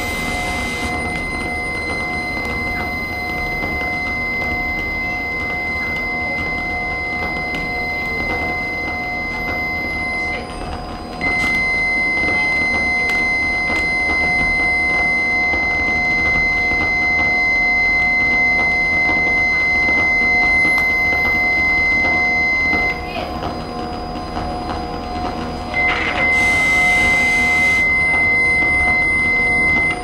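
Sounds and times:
sliding high whistle: 0.0s - 10.4s, 25.8s - 30.0s
sustained high electronic tone: 0.0s - 30.0s.

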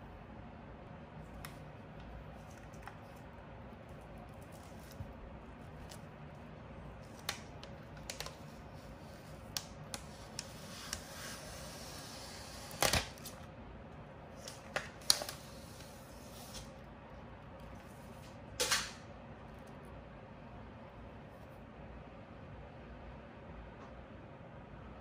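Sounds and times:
plastic film crinkling: 6.9s - 11.0s.

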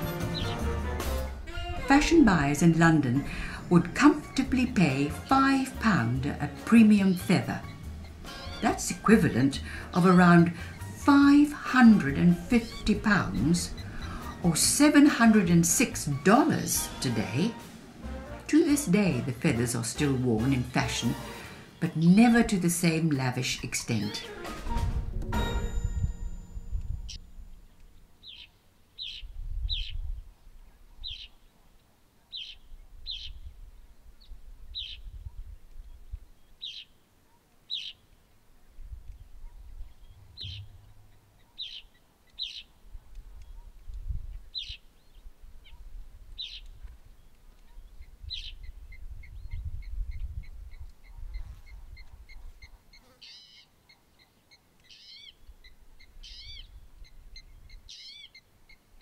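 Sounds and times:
sweeping bird calls: 0.0s - 24.6s, 27.0s - 38.4s, 39.1s - 59.0s
bird chirps: 0.3s - 0.6s, 6.8s - 9.5s, 11.9s - 14.4s, 25.4s - 31.6s, 32.3s - 33.5s, 34.2s - 38.2s, 39.5s - 58.9s
low rumble: 24.8s - 28.3s, 40.0s - 41.4s.

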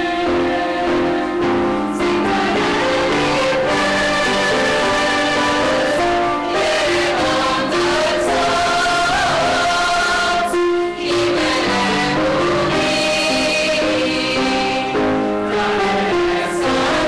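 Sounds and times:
mixed choir singing: 0.0s - 17.0s.

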